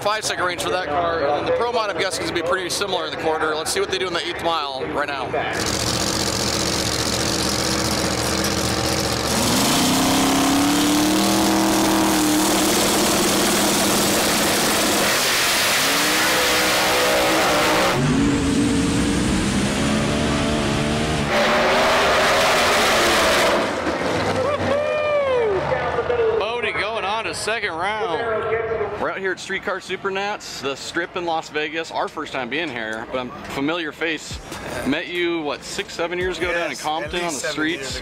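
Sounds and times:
drag race engines revving: 0:05.5 - 0:24.8.

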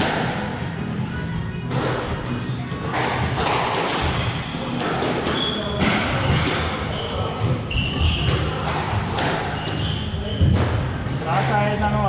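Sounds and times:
squash ball striking walls: 0:02.8 - 0:11.7
shoes squeaking on court floor: 0:04.2 - 0:10.7.

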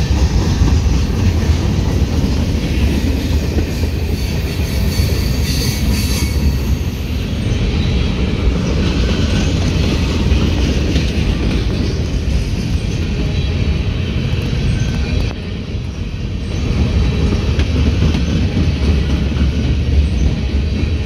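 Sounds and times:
freight train rumbling on rails: 0:00.0 - 0:21.0
high wheel squeal: 0:03.0 - 0:08.2.

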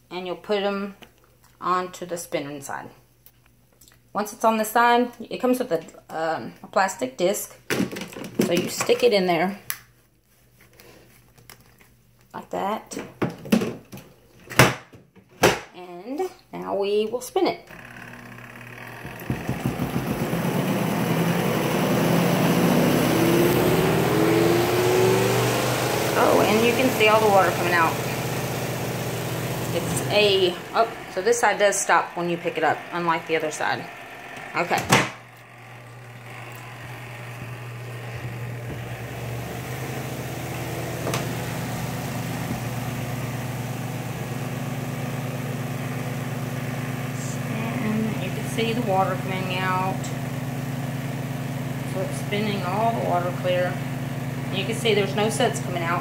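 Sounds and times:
spin dryer motor hum: 0:17.6 - 0:56.0
rising whine: 0:17.9 - 0:34.6, 0:35.2 - 0:48.8
water rushing from drain hose: 0:23.3 - 0:34.0.

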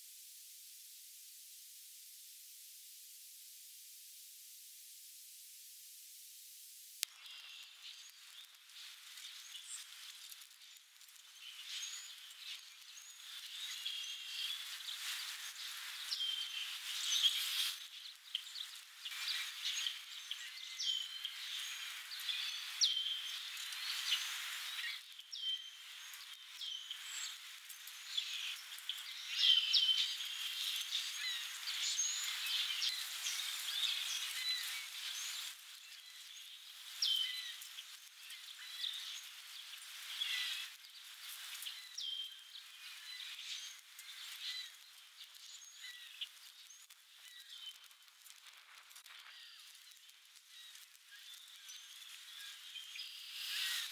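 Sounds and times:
steady hiss: 0:00.0 - 0:53.9
small birds chirping: 0:07.0 - 0:53.9.

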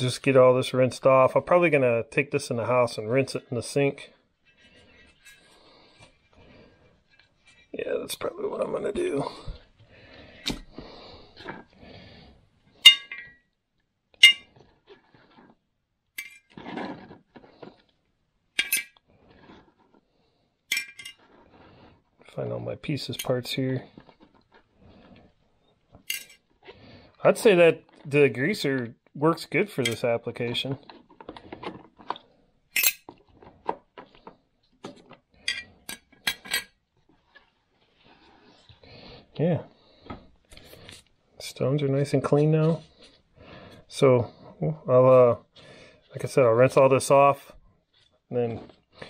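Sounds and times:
metal parts clinking: 0:26.1 - 0:26.4, 0:32.8 - 0:33.1
small metal parts clinking: 0:26.1 - 0:26.4.

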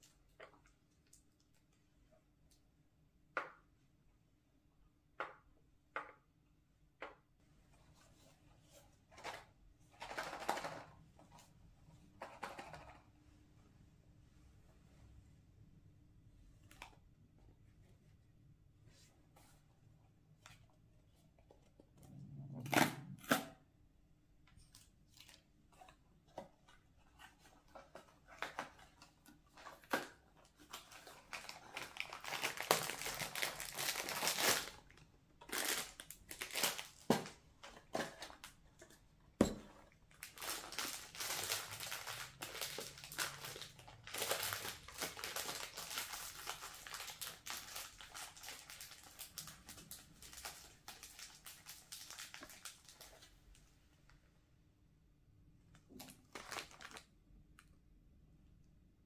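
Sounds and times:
plastic packet crinkling and tearing: 0:30.6 - 0:37.1, 0:40.1 - 0:53.3, 0:56.0 - 0:57.1.

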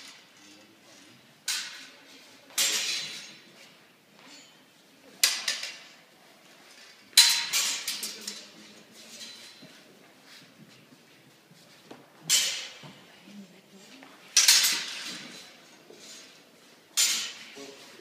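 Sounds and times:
swords clashing blade on blade: 0:17.0 - 0:17.5.

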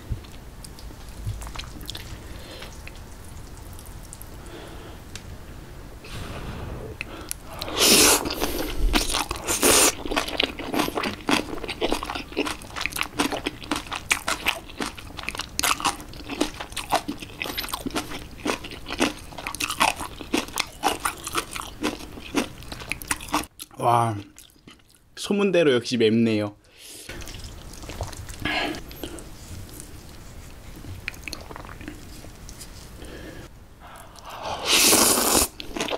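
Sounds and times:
chewing with wet crunches: 0:00.2 - 0:04.4, 0:07.3 - 0:25.0, 0:27.1 - 0:32.6, 0:35.4 - 0:35.9
loud crunchy bites: 0:07.3 - 0:23.5, 0:34.2 - 0:35.9.

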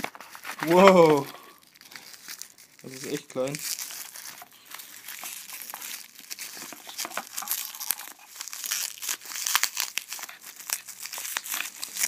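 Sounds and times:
bubble wrap crinkling: 0:00.0 - 0:12.0.

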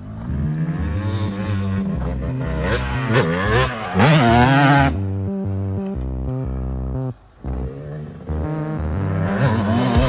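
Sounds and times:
motocross bike engine revving: 0:00.0 - 0:10.0
background music: 0:04.0 - 0:10.0.

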